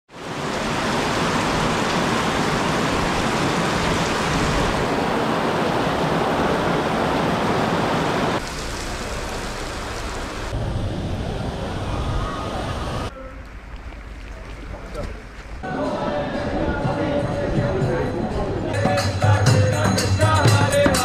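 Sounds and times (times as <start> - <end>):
heavy rain on pavement: 0.1 - 11.1.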